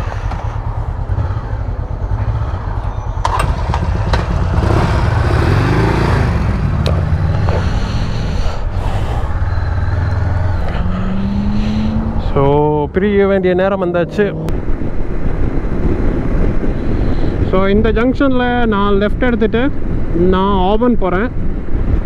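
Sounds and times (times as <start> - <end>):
motorcycle engine running: 0.0 - 12.8.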